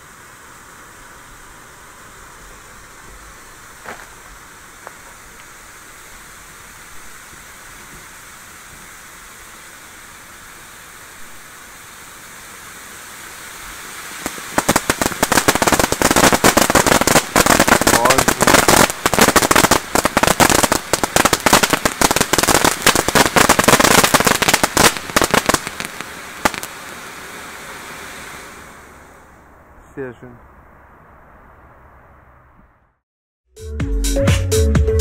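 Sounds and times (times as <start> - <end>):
fireworks fountain hissing: 0.0 - 30.4
dense rapid crackling: 14.6 - 25.8.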